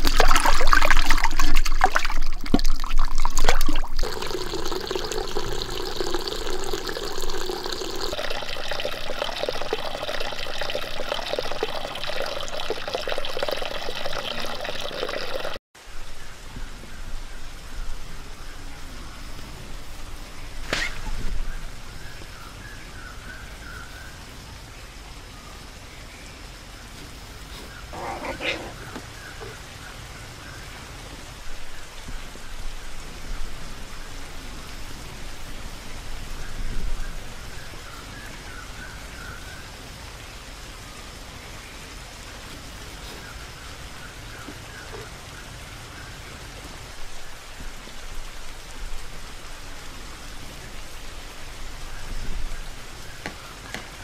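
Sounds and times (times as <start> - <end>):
outdoor hiss: 0.0 - 54.0.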